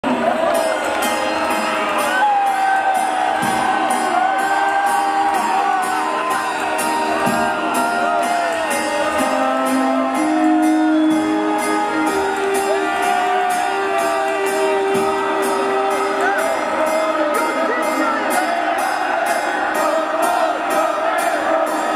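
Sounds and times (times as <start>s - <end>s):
crowd whooping: 0.0s - 21.9s
drums with steady beat: 3.1s - 9.8s.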